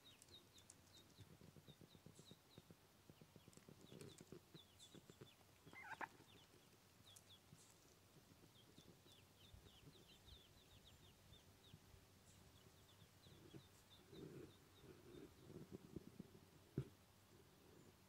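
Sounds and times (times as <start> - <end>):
ducklings peeping: 0.0 - 16.9
duck hen calling: 5.7 - 6.2.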